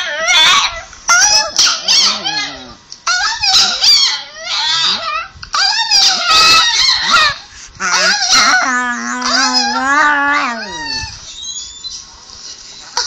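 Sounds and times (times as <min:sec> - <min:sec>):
dog howling: 0:04.4 - 0:11.2.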